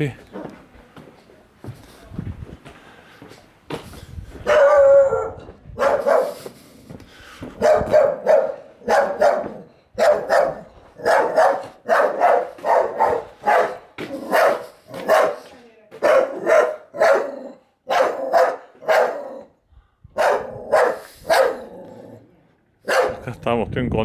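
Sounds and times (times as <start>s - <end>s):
dog barking: 4.4s - 6.5s, 7.6s - 22.0s, 22.8s - 23.3s.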